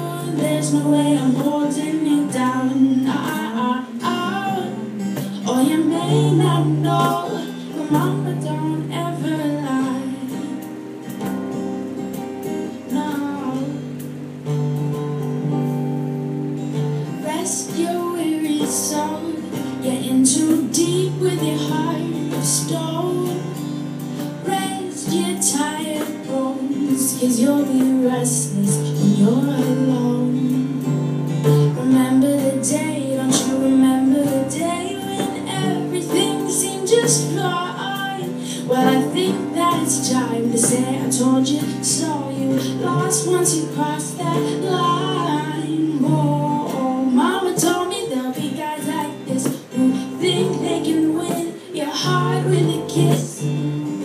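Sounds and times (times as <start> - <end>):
bongos played by hand: 0.0 - 9.4, 31.4 - 54.0
woman singing: 0.0 - 11.4, 12.0 - 14.3, 16.7 - 54.0
strummed acoustic guitar: 0.0 - 54.0.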